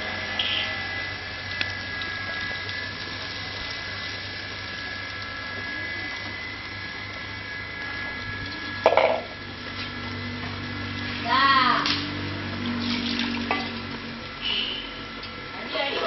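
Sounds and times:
steady background hum: 0.0 - 16.0
wet squelching and sloshing: 12.0 - 14.4.

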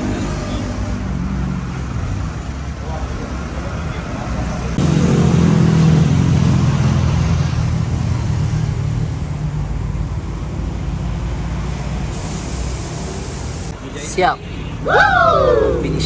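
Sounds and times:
vehicle engine passing by: 0.0 - 13.7.

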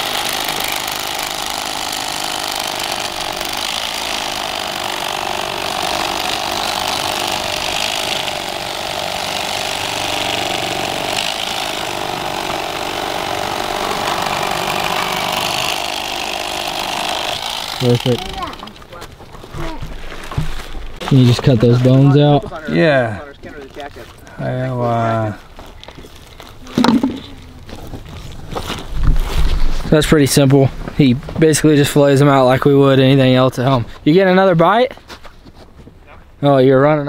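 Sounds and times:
electric knife cutting fish: 0.0 - 18.8.

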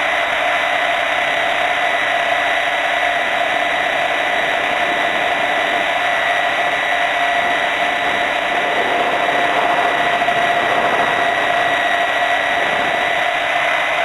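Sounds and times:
helicopter rotors rushing: 0.0 - 14.0
mechanical drive whine: 0.0 - 14.0.

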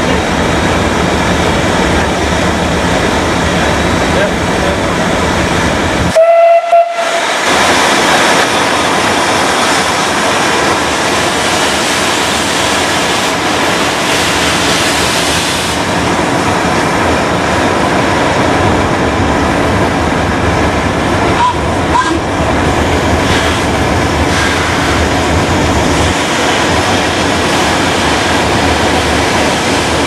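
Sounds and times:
rushing hiss of steam: 5.7 - 16.1, 23.1 - 30.0
steam locomotive whistle: 6.1 - 7.4, 21.4 - 22.2.

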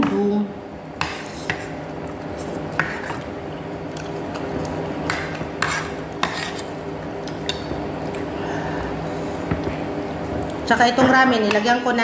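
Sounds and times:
steady low hum: 0.0 - 12.0
chopsticks stirring noodles in a bowl: 1.0 - 10.8.

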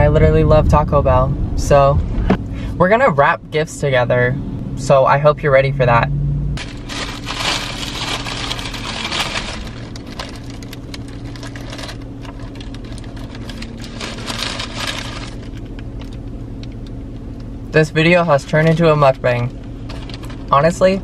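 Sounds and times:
steady low hum: 0.0 - 21.0
paper wrapper crinkling: 6.6 - 16.9, 19.9 - 20.6.

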